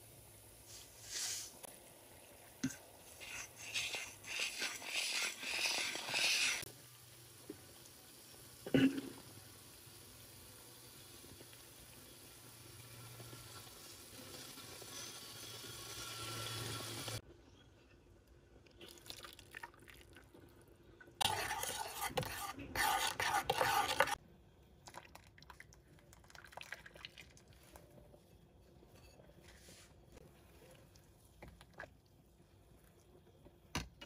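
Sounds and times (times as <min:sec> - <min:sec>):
chili oil sizzling in a pan: 0:02.6 - 0:17.2.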